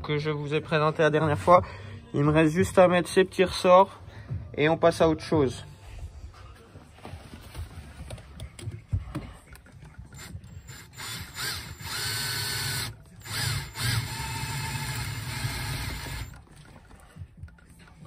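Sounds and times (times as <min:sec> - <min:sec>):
cordless drill whining: 0:10.2 - 0:16.4.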